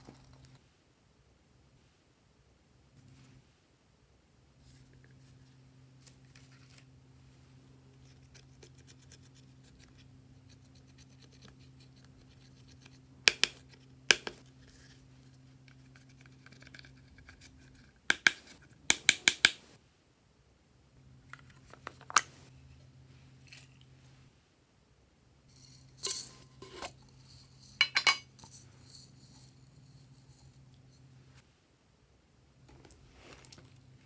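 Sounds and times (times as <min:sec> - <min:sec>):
low steady hum: 0:00.0 - 0:34.0
spatula scratching powder eyeshadow: 0:08.0 - 0:18.7.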